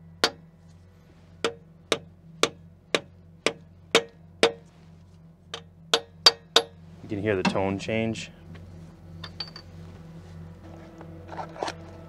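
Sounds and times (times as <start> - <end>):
hammer tapping metal: 1.5 - 4.6, 5.5 - 6.8.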